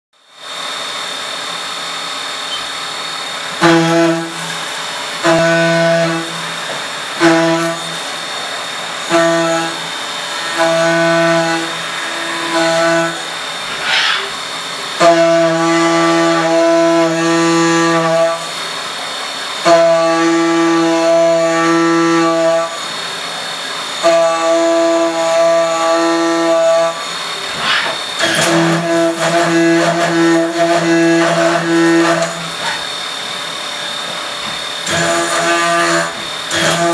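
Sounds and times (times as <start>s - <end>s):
end mill cutting metal buzzing: 0.3s - 36.9s
high spindle whine: 0.5s - 15.0s.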